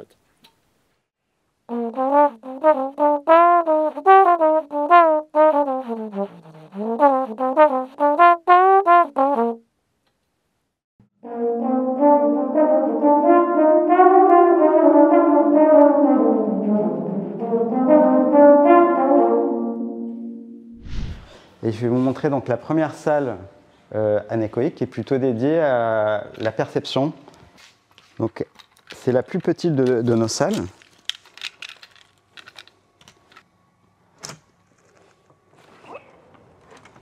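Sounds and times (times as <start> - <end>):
trombone playing melodic phrase: 1.7 - 9.6, 11.2 - 20.4.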